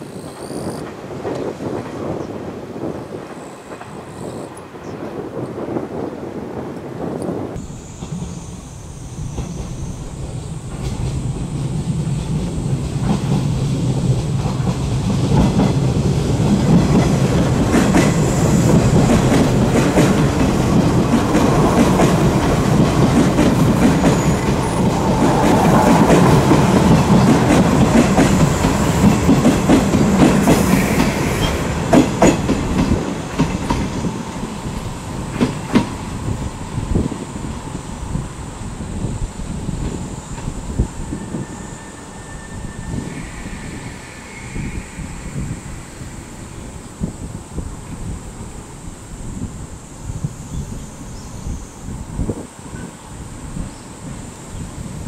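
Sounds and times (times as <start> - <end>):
electric train passing: 0.0 - 55.0
wheels clacking over rail joints: 10.6 - 36.0.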